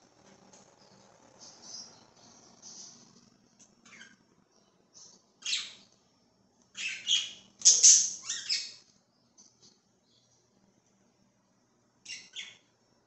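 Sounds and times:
budgerigars chirping and squawking: 0:03.9 - 0:04.2, 0:06.8 - 0:08.8, 0:12.1 - 0:12.6.

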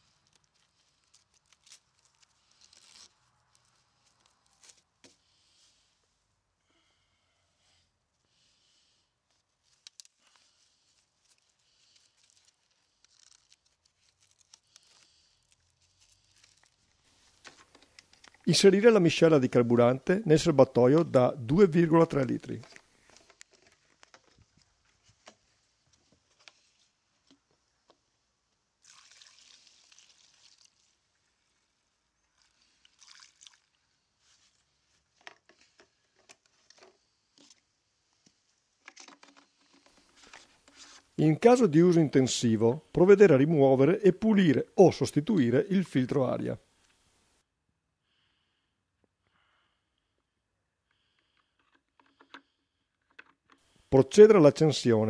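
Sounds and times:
rustles of fastening velcro straps: 0:00.0 - 0:05.2, 0:09.3 - 0:18.5
fuel pouring through a funnel: 0:28.8 - 0:34.7.

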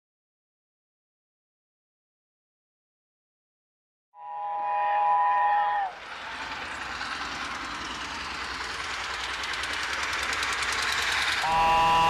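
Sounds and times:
steam locomotive exhaust beats: 0:04.2 - 0:12.0.

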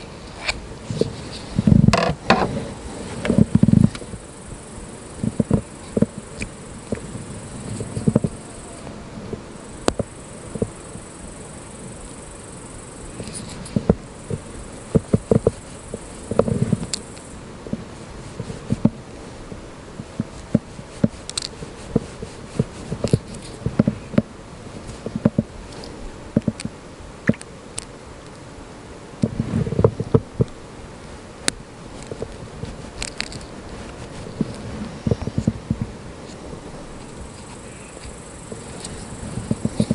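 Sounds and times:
high-pitched insect trill: 0:03.4 - 0:08.9, 0:09.5 - 0:17.4, 0:37.0 - 0:39.9.

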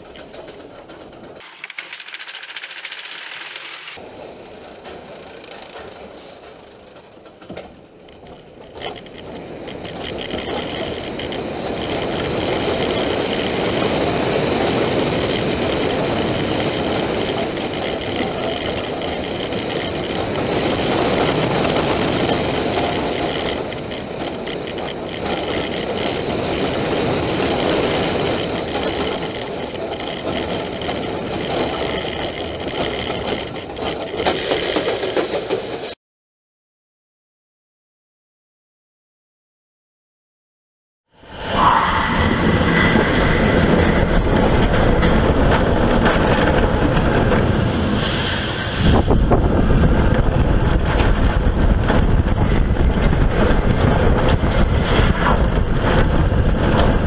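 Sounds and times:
roller coaster on track: 0:00.0 - 0:36.0, 0:41.2 - 0:57.0.

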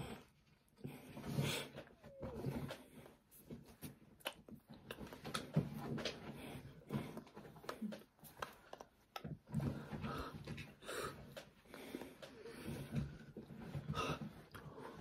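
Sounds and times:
lip smacks and clicks: 0:03.8 - 0:05.4.

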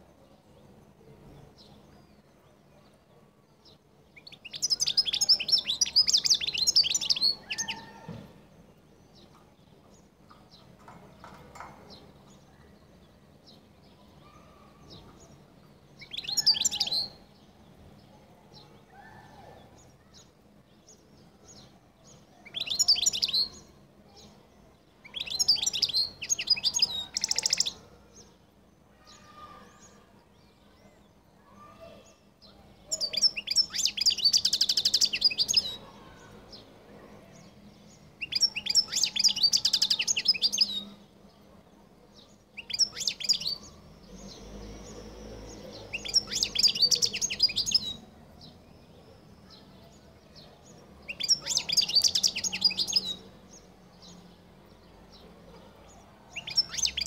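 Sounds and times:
goldfinch twittering and trills: 0:42.6 - 0:48.1, 0:50.6 - 0:53.2.

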